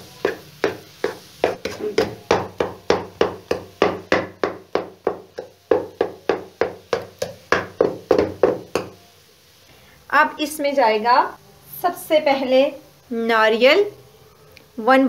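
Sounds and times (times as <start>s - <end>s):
spatula knocking against wok: 0.1s - 9.0s.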